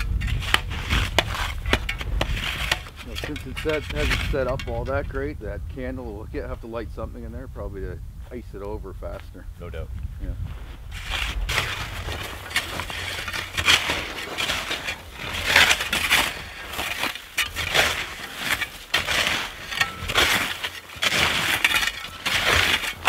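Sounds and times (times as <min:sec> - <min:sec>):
snow shovels crunching and scraping: 0:00.0 - 0:05.1, 0:10.5 - 0:23.0.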